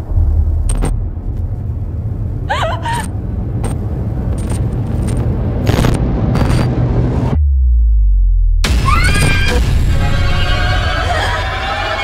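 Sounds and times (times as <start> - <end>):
low rumbling drone: 0.0 - 12.0
static crackles: 4.4 - 6.7.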